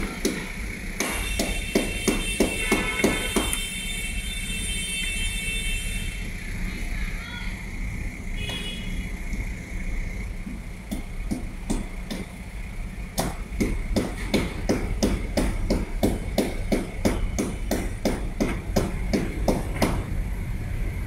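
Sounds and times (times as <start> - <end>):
steady low hum: 0.0 - 2.5, 5.6 - 21.0
sharp knocks: 0.0 - 3.6, 10.9 - 12.3, 13.2 - 20.1.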